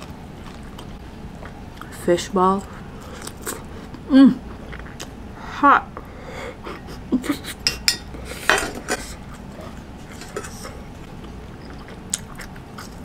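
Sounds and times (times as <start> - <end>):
utensils clinking against metal pot: 7.6 - 9.0.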